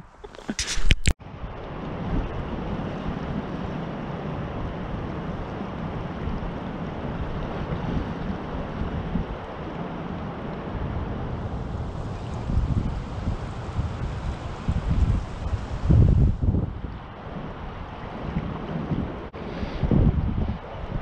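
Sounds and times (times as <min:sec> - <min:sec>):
wind buffeting microphone: 0:00.0 - 0:21.0
river rushing: 0:09.5 - 0:16.4.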